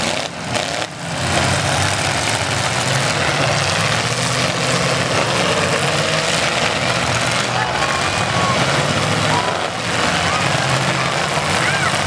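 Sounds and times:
car engines running: 0:00.0 - 0:12.0.

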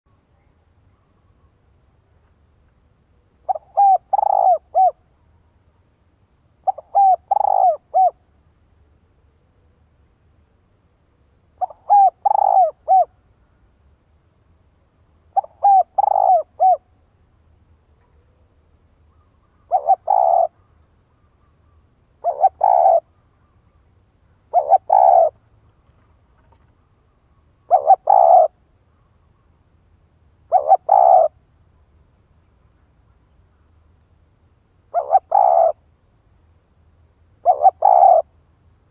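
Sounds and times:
dove cooing: 0:03.2 - 0:05.1, 0:06.6 - 0:08.2, 0:11.6 - 0:13.2, 0:15.3 - 0:17.0, 0:19.1 - 0:20.7, 0:22.2 - 0:23.1, 0:24.5 - 0:25.4, 0:27.6 - 0:28.6, 0:30.5 - 0:31.4, 0:34.9 - 0:35.8, 0:37.4 - 0:38.3.

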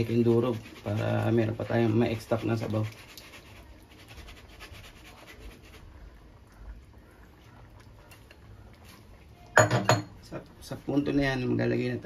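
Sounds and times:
scratching in metal strainer: 0:00.0 - 0:05.9.

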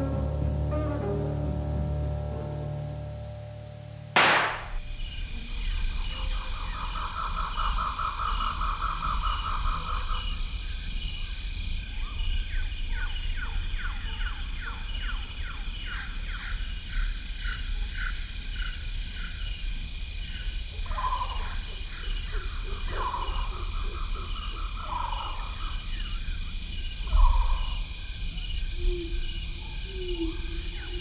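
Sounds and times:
steady high whine: 0:00.0 - 0:05.2.

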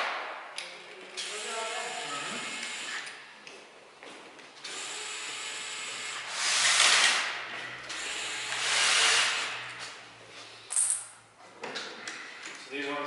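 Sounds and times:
cordless drill running: 0:01.2 - 0:03.1, 0:04.7 - 0:09.7.

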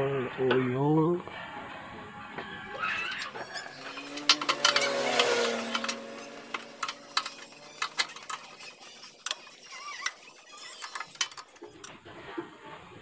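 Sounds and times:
wrench clicking on metal bolts: 0:02.9 - 0:11.9.

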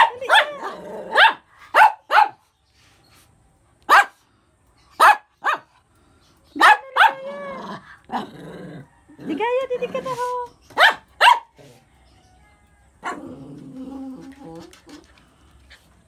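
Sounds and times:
small dog barking: 0:00.0 - 0:02.4, 0:03.9 - 0:04.2, 0:05.0 - 0:05.7, 0:06.6 - 0:07.4, 0:10.8 - 0:11.6, 0:13.0 - 0:13.3.

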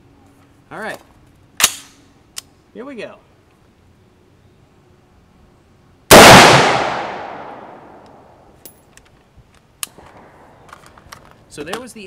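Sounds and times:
rifle shot echoing: 0:06.1 - 0:08.3.

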